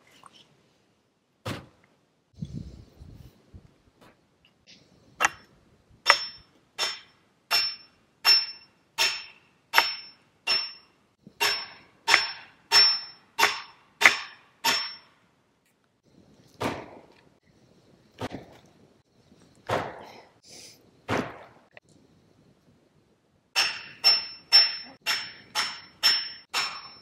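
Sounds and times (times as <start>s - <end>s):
hammer strikes ringing: 6.1s - 15.1s, 23.6s - 27.0s.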